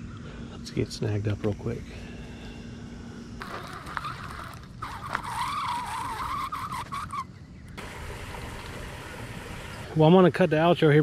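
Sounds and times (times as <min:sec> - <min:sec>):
fishing reel whirring: 0:03.4 - 0:10.0.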